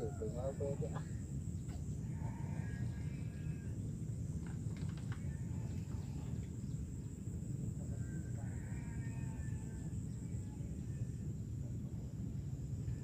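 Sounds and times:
faint bird calls: 0.0 - 6.8.

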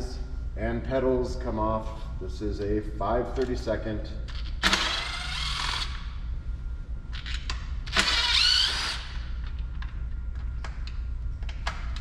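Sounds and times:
cordless drill running: 4.6 - 6.0, 7.9 - 9.3.

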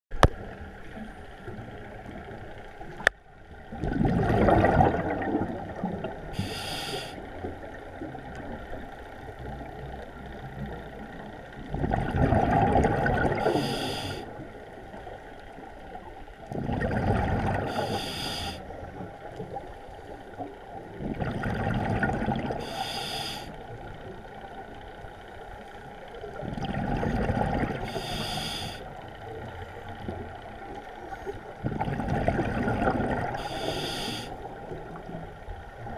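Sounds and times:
gurgling exhaled bubbles: 3.6 - 6.8, 11.6 - 14.2, 16.5 - 18.6, 20.7 - 22.9, 26.3 - 28.4, 31.3 - 35.2
regulator hiss: 6.4 - 7.3, 13.4 - 14.2, 17.7 - 18.6, 22.6 - 23.6, 27.9 - 28.8, 33.4 - 34.4.

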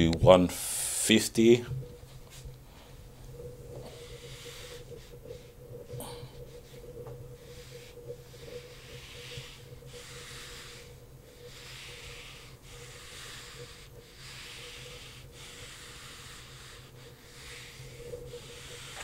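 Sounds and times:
eraser rubbing on whiteboard: 4.0 - 5.5, 7.5 - 19.0.

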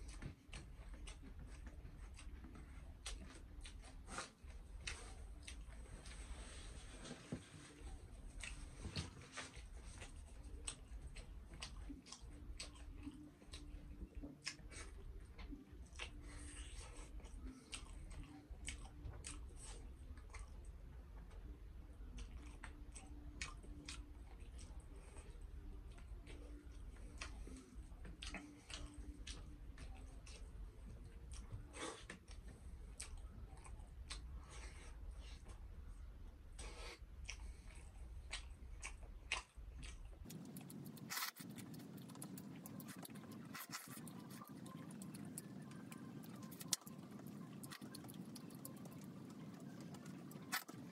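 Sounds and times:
chewing with mouth smacks: 0.0 - 50.9
wet mouth clicks: 38.3 - 50.9.

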